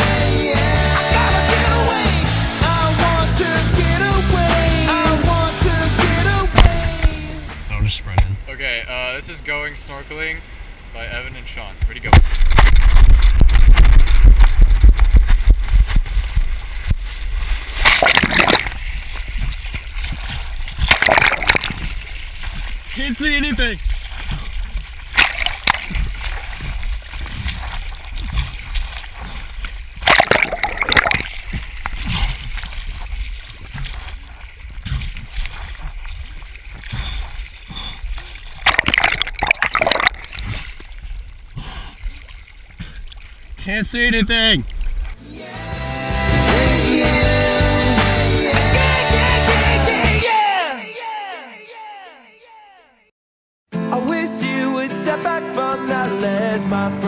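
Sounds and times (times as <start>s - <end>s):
water splashing: 6.3s - 45.2s.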